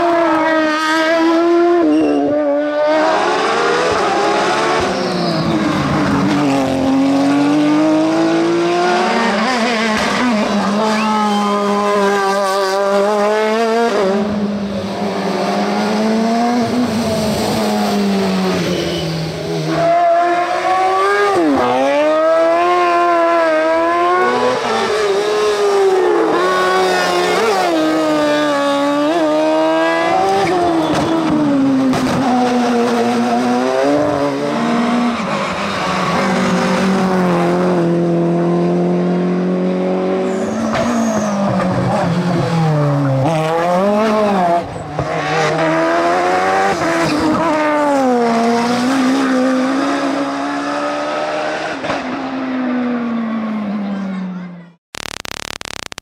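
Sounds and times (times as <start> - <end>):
racing car engines revving: 0.0 - 54.3
tyre squeal: 1.8 - 2.4, 4.9 - 5.8, 10.7 - 11.9, 18.5 - 20.1, 40.2 - 41.6.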